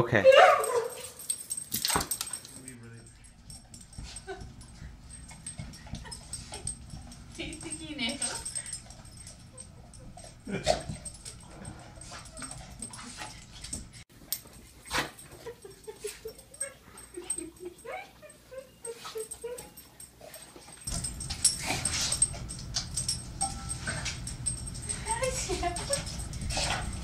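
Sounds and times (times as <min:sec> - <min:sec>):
dog whining: 0:00.2 - 0:02.1, 0:16.0 - 0:20.4.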